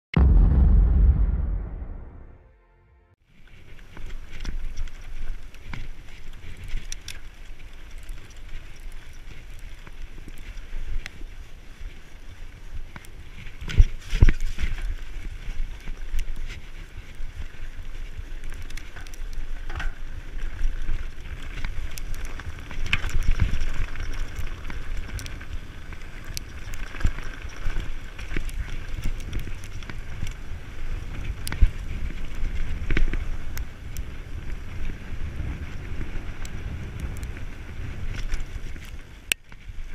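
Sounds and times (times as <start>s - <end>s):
bike tyres rolling over gravel: 3.2s - 39.9s.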